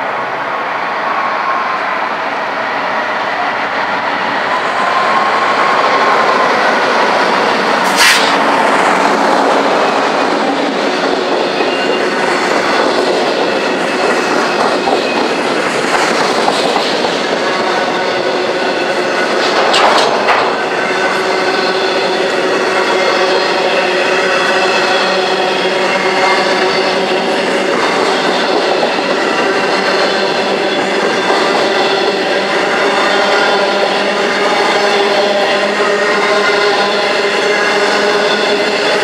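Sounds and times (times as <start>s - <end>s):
diesel locomotive engine: 0.0s - 39.0s
wheels clacking over rail joints: 8.8s - 22.8s.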